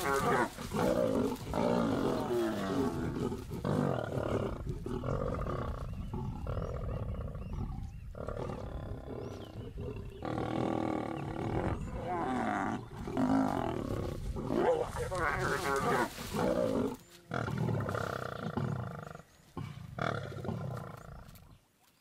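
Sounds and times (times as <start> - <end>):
lions growling: 0.0 - 21.5.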